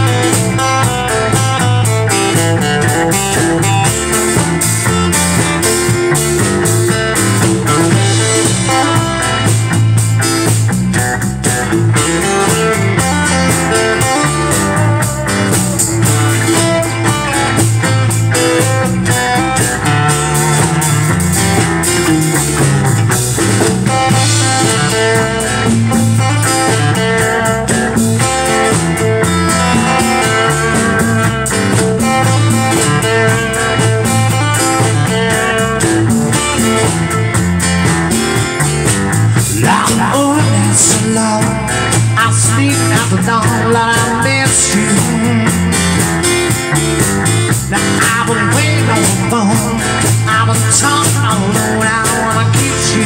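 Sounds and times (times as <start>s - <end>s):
acoustic-electric guitar: 0.0s - 53.0s
drums playing a groove: 0.0s - 53.0s
man singing: 39.4s - 46.0s, 47.6s - 53.0s.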